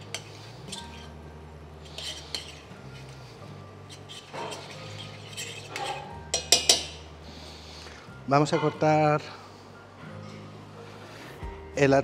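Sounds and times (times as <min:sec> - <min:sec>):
clinks against metal pan: 0:05.8 - 0:07.0.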